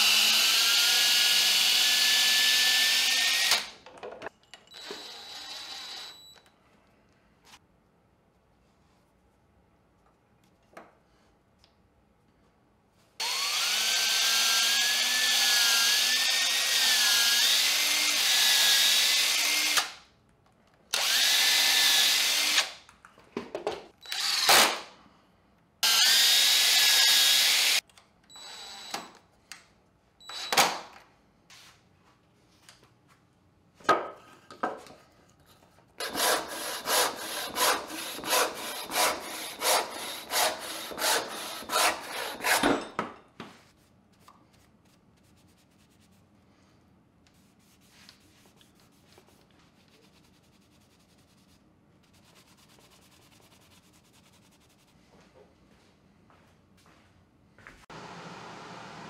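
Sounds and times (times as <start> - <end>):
cordless drill boring into wood: 0.0 - 3.7, 4.8 - 6.2, 13.2 - 19.9, 21.0 - 22.7, 24.0 - 24.8, 25.8 - 27.8
hand saw cutting wood: 36.0 - 42.8.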